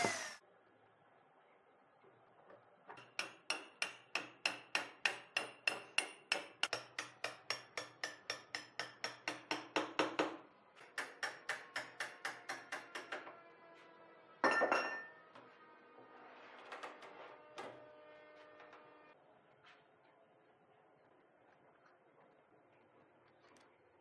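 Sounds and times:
hand hammering with ringing: 0:03.0 - 0:13.2.

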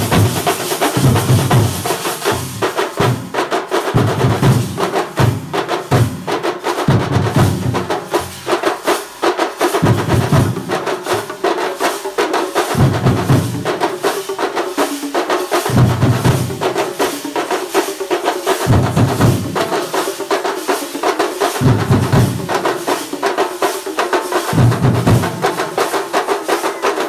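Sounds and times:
drum ensemble stick strokes: 0:00.0 - 0:27.0.

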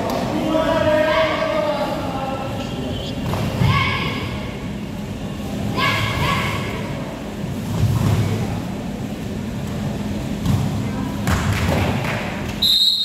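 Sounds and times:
referee's whistle blast: 0:12.6 - 0:13.0.

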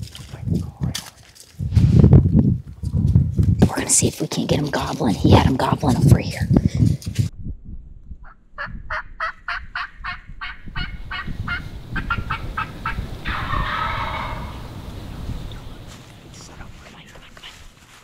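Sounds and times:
turkey gobbling: 0:08.2 - 0:14.8
turkey call notes: 0:08.2 - 0:15.9.

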